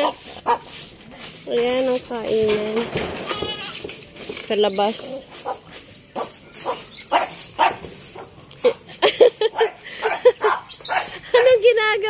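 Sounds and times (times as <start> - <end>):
hooves knocking on wooden floor: 1.6 - 4.7.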